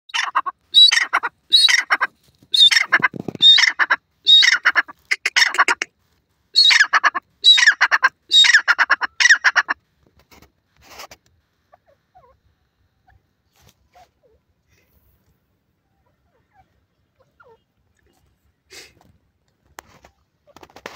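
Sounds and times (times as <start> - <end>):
francolin calling harshly: 0.1 - 5.9, 6.6 - 9.8.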